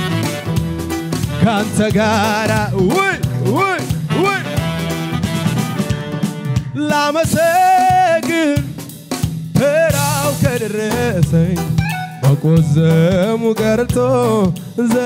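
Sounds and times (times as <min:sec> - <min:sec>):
keyboard accompaniment: 0:00.0 - 0:15.0
man singing into microphone: 0:01.3 - 0:04.6, 0:06.7 - 0:08.8, 0:09.6 - 0:15.0.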